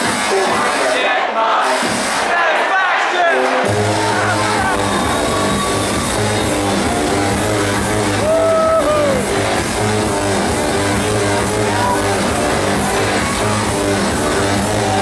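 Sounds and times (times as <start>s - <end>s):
loud electro house music: 0.0s - 15.0s.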